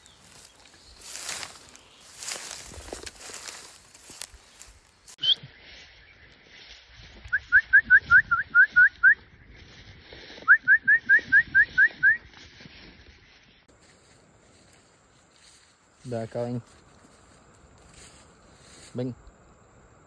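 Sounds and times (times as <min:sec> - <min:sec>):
bird singing rising whistles: 0:05.2 - 0:06.2, 0:07.2 - 0:09.4, 0:10.4 - 0:12.3.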